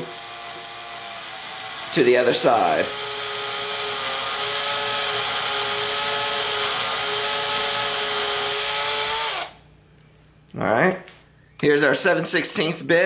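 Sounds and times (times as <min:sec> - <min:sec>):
cordless drill boring into wood: 0:00.0 - 0:09.6.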